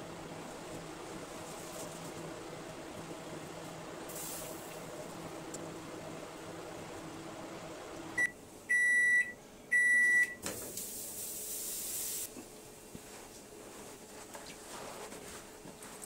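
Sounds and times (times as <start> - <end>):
microwave oven beeping: 5.2 - 10.6.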